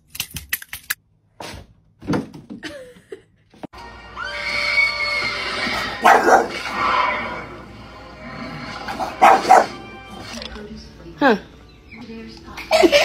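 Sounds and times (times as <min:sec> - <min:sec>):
film soundtrack from tv: 0:03.7 - 0:13.0
dog barking: 0:06.0 - 0:06.6, 0:09.0 - 0:09.8.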